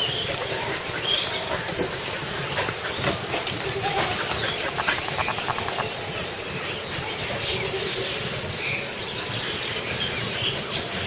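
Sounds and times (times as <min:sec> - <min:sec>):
birds chirping: 0:00.0 - 0:11.0
steady outdoor hiss: 0:00.0 - 0:11.0
rapid clicks: 0:03.5 - 0:06.0.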